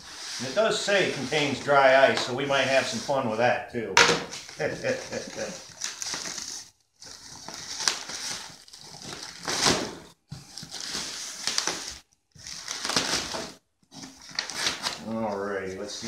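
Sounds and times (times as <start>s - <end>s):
plastic wrap crinkling: 4.4s - 16.0s.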